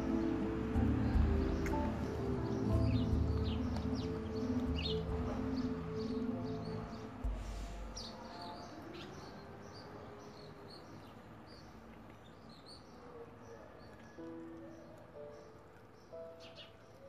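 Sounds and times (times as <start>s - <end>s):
background music: 0.0s - 10.3s, 13.7s - 17.0s
small birds chirping: 0.0s - 17.0s.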